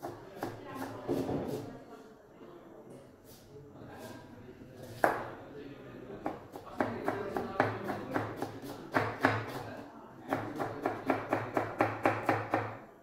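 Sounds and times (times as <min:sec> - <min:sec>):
knife chopping on cutting board: 0:00.0 - 0:01.6, 0:06.3 - 0:09.7, 0:10.3 - 0:12.8.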